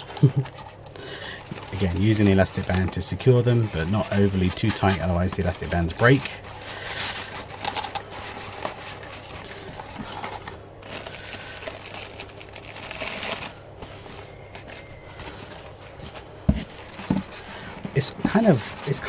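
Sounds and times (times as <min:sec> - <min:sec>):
paper napkins rustling: 0:00.0 - 0:19.0
plastic wrapper crinkling: 0:00.0 - 0:19.0.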